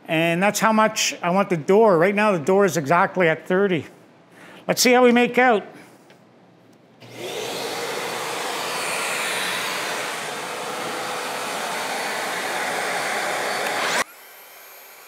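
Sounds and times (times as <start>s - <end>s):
circular saw whining: 7.0s - 15.0s.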